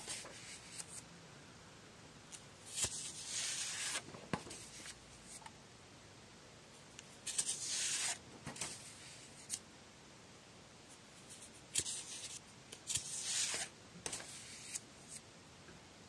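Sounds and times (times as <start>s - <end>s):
paper rustling and sliding: 2.7s - 5.4s, 7.2s - 9.6s, 11.3s - 15.2s.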